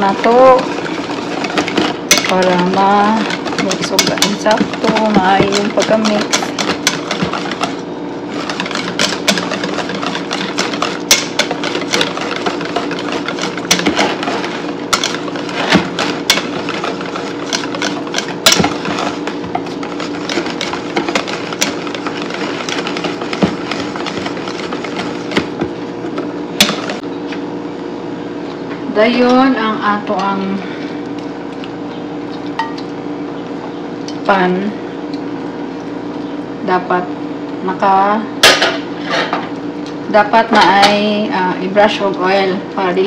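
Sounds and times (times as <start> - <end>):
whisk beating batter in metal bowl: 0.0 - 27.0
steady low hum: 0.0 - 43.0.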